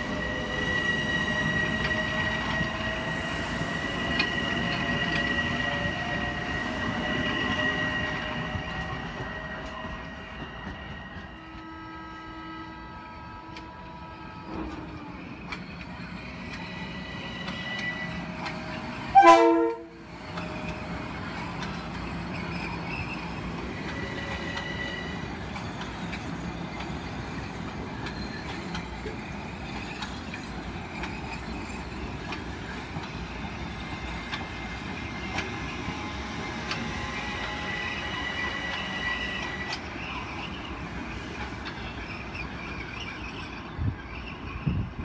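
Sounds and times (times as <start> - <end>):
high wheel squeal: 0.0 - 13.4, 20.5 - 45.0
train rolling over rails: 0.0 - 45.0
train horn blast: 19.1 - 20.0.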